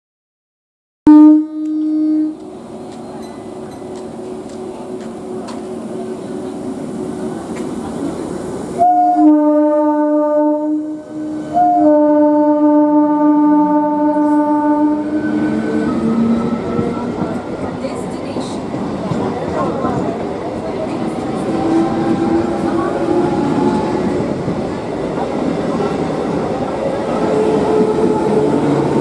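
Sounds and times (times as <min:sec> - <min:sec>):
train horn blasts: 0:01.1 - 0:02.5, 0:08.8 - 0:16.3
train running noise: 0:01.4 - 0:29.0.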